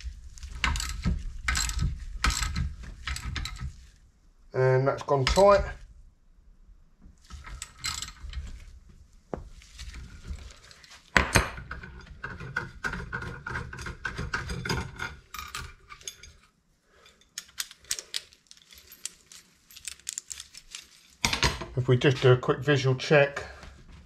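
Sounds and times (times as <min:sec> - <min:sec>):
steel tools clinking: 0:14.5 - 0:21.3.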